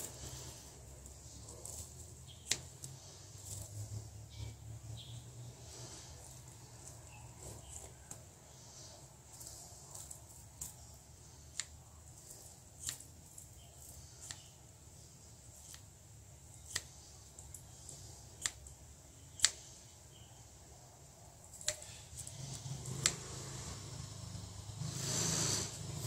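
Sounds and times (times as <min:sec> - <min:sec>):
scissors snipping: 0:12.8 - 0:13.1, 0:16.6 - 0:17.6, 0:18.4 - 0:18.7, 0:19.4 - 0:19.6.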